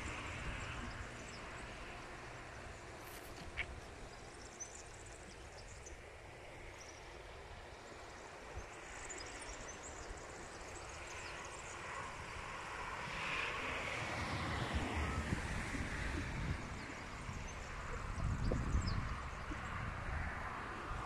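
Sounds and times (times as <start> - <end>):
wind rumbling on microphone: 0.0 - 5.9, 9.4 - 21.0
open-air hiss: 0.0 - 14.9
small birds chirping: 2.5 - 6.0.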